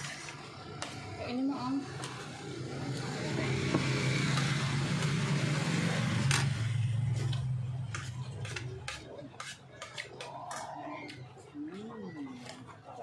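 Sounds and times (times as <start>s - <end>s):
vehicle engine passing: 2.4s - 8.9s.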